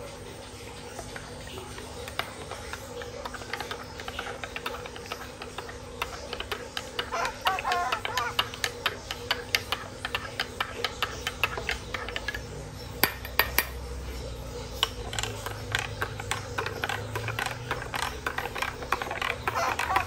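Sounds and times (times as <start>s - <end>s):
teaspoon clinking against glass: 13.0s - 13.8s.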